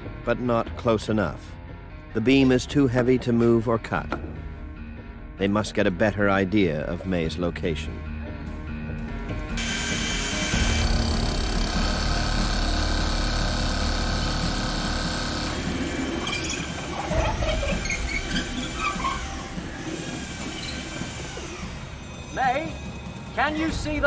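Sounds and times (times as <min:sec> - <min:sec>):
power drill boring into concrete: 0:09.6 - 0:16.8
short high squeaks and scrapes: 0:16.2 - 0:21.7.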